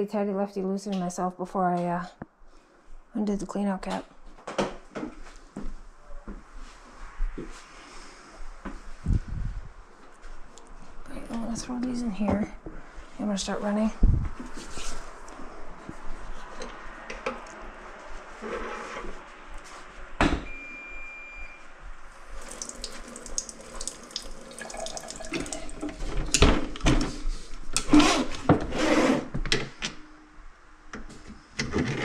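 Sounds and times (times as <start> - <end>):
faucet running water into sink: 22.2 - 26.4.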